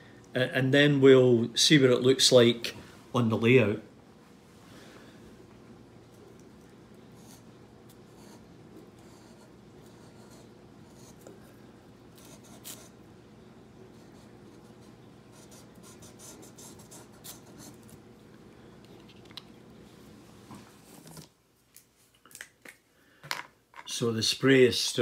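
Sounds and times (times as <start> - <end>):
felt-tip pen scratching: 12.2 - 13.0.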